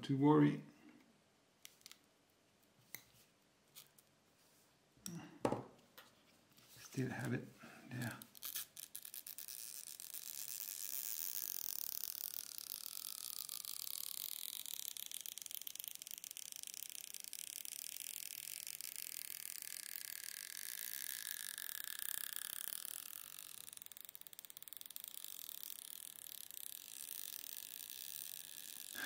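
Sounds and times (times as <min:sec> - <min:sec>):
adhesive strip crackling: 0:18.4 - 0:29.0.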